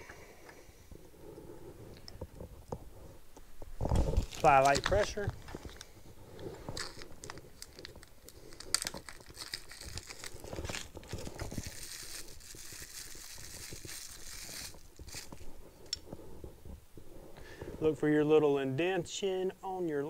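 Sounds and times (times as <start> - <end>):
wrapper crinkling and rustling: 3.8 - 16.0.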